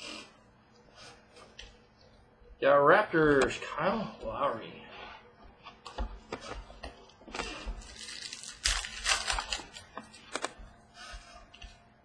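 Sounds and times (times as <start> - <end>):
trading cards clicking and rustling: 5.8 - 10.7.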